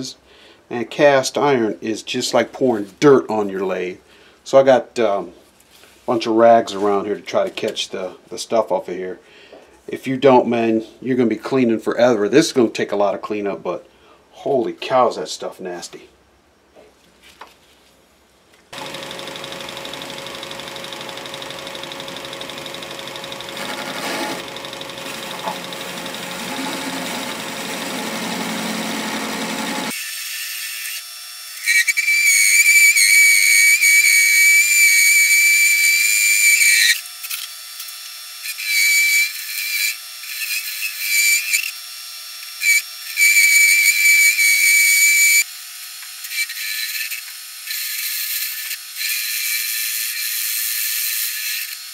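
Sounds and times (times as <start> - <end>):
metal lathe running: 18.8 - 29.9
high-pitched cutting squeal: 18.8 - 30.0.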